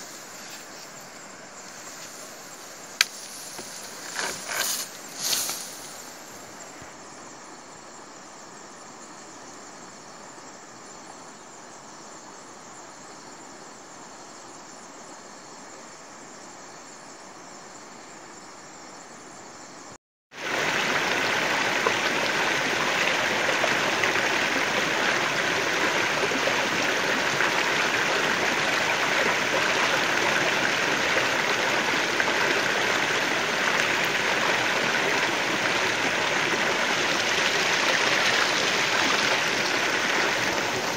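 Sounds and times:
stream water rushing: 0.0s - 6.6s, 20.3s - 40.9s.

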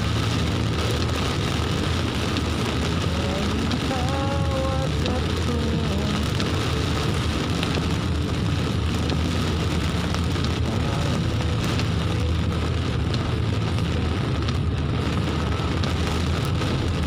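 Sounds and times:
engine and road rumble: 0.0s - 17.0s
rain on car roof: 0.0s - 17.0s.

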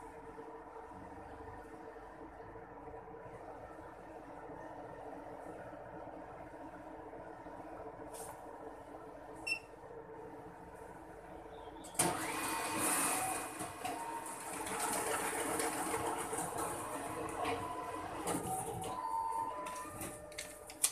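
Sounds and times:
machine key beep: 9.5s - 9.7s.

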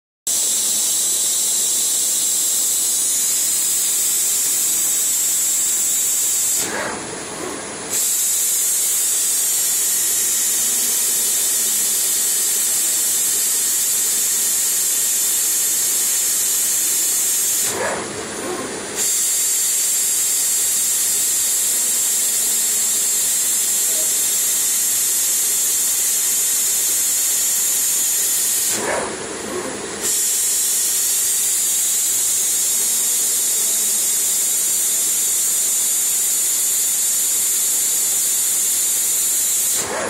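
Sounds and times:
log slitter blades hissing: 3.9s - 13.8s, 16.3s - 32.0s, 39.5s - 40.0s.

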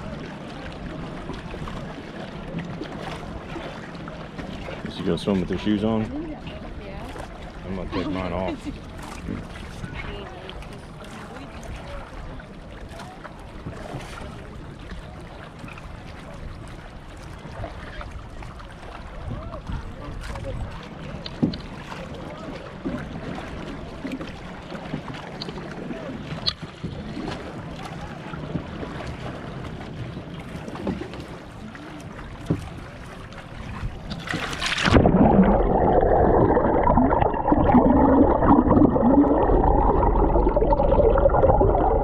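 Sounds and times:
underwater rushing and bubbling: 0.0s - 42.0s
water lapping around boat: 0.0s - 42.0s
camera splashing into water: 34.0s - 40.0s.

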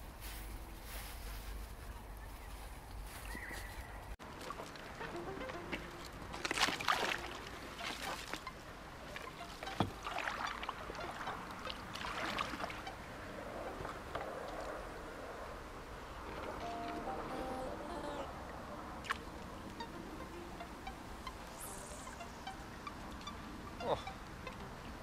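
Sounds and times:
paddle splashing in water: 4.2s - 13.0s.

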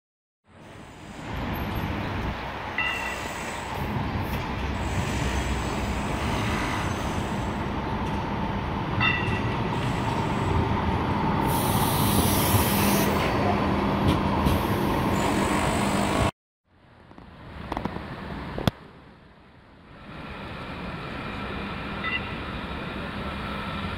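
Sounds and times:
tram wheels rumbling on rails: 0.5s - 16.3s, 19.8s - 23.9s.

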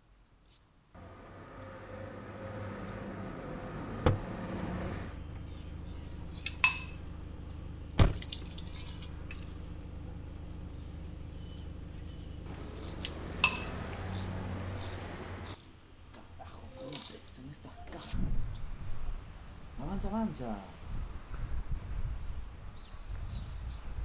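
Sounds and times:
steady low hum: 1.0s - 15.6s.

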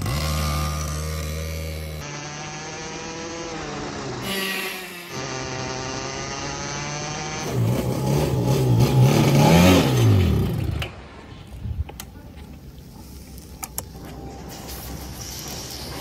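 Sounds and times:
go-kart engine: 0.0s - 11.5s.

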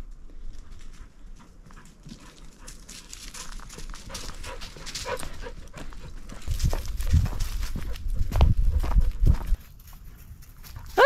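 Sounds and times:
footsteps crunching on dry leaves: 2.9s - 11.0s.

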